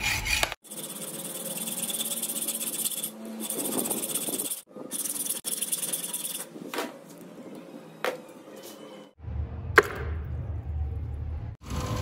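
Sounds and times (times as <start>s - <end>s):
hacksaw rasping through steel: 0.0s - 6.5s.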